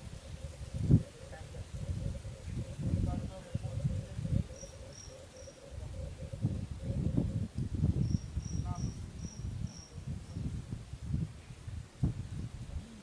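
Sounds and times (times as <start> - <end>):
insect high chirps: 7.9 - 10.5.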